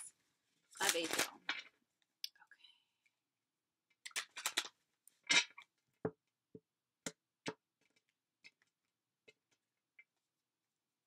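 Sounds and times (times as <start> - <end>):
cards shuffling rustle: 0.8 - 1.6.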